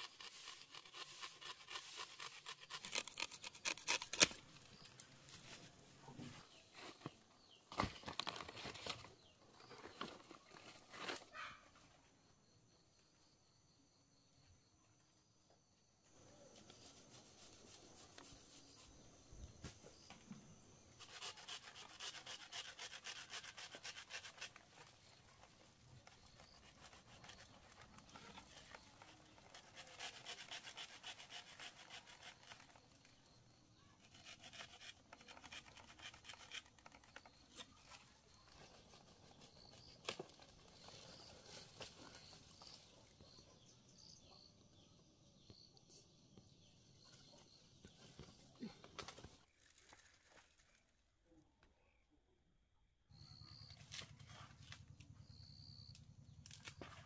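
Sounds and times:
rapid scraping strokes: 0.0s - 4.8s, 20.9s - 33.2s, 34.0s - 37.9s.

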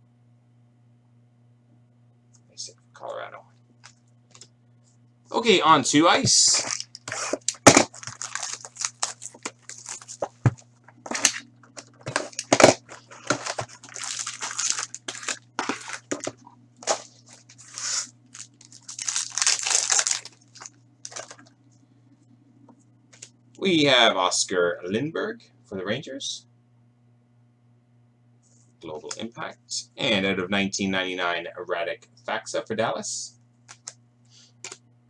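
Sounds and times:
faint low hum: 0.0s - 35.0s
foil packs crinkling and tearing: 6.4s - 21.5s.

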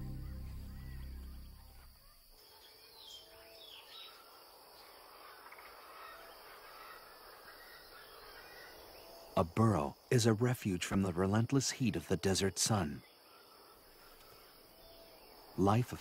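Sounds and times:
background music: 0.0s - 1.9s
bird chirps: 0.0s - 5.0s.

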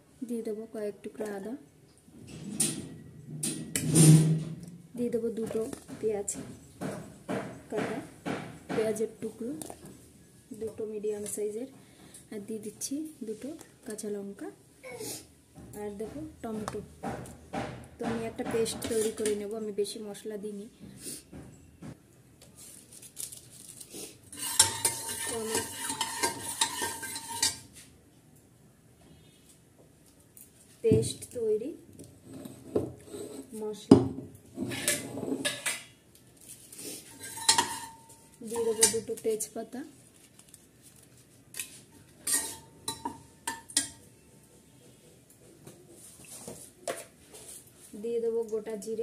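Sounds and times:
spatula scraping metal pot: 18.7s - 19.4s, 24.3s - 27.8s, 32.2s - 33.6s, 34.5s - 35.9s, 37.0s - 39.2s, 42.2s - 44.0s.

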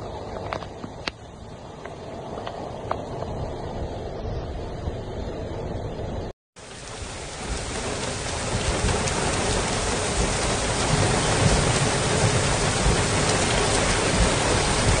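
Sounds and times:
floodwater rushing: 6.6s - 15.0s.

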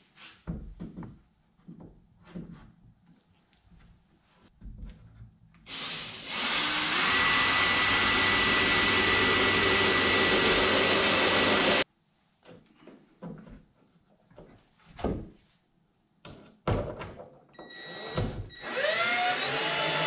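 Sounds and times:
cordless drill whining: 5.7s - 11.8s, 17.6s - 20.0s.

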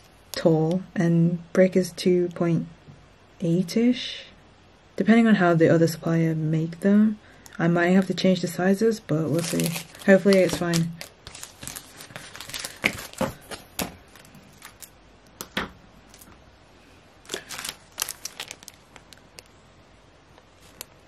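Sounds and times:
plastic bags crinkling: 9.3s - 15.0s, 16.1s - 16.3s, 17.2s - 19.6s, 20.5s - 21.0s.

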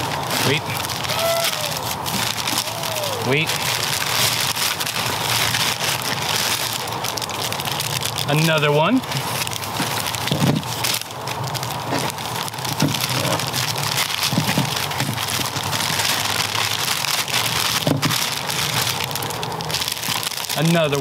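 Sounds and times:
packing paper crinkling and tearing: 0.0s - 21.0s.

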